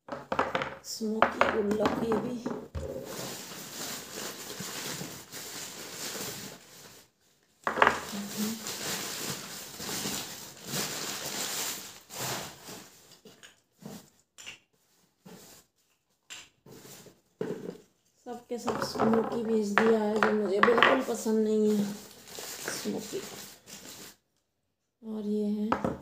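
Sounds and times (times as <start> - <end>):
newspaper rustling: 2.9 - 7.2, 8.1 - 13.0, 21.6 - 24.2.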